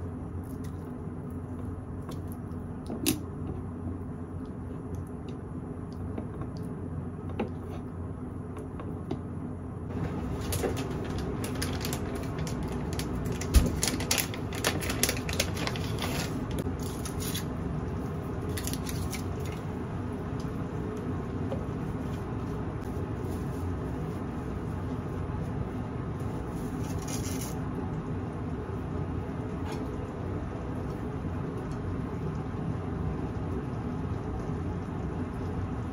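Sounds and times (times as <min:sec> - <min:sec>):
packet rustling: 0:10.0 - 0:17.5.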